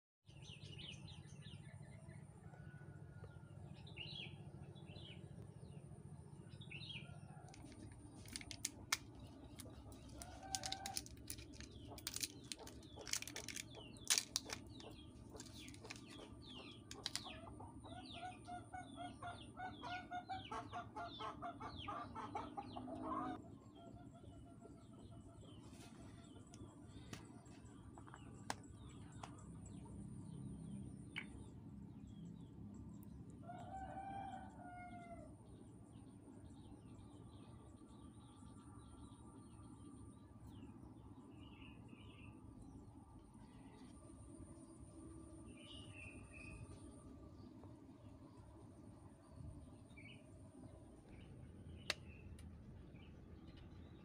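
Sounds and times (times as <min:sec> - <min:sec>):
small birds chirping: 0:06.5 - 0:22.8, 0:23.8 - 0:33.2, 0:49.2 - 0:54.0
plastic foil sachet crackling: 0:07.6 - 0:14.8, 0:15.4 - 0:16.2, 0:16.9 - 0:17.2
chickens clucking: 0:09.6 - 0:23.4.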